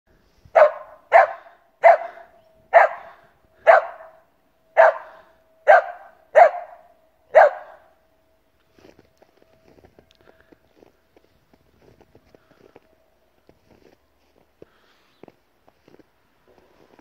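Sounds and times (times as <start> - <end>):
dog barking: 0.5 - 8.0.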